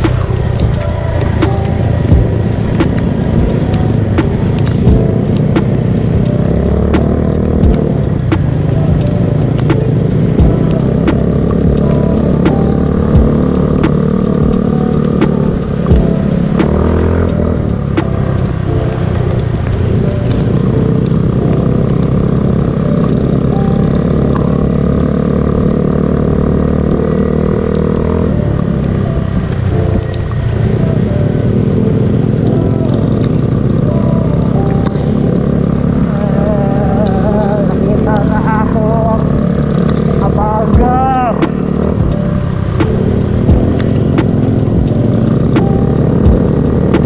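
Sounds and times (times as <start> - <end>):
scooter engine running: 0.0 - 47.0.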